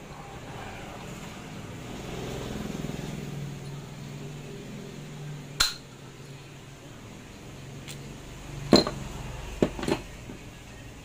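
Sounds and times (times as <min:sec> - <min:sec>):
metal parts clinking and knocking: 0:08.7 - 0:09.0, 0:09.6 - 0:10.2.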